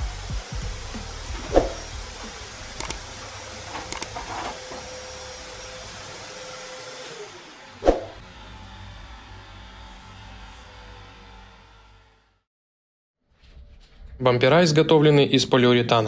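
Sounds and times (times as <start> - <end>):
power tool humming: 0.0 - 12.4.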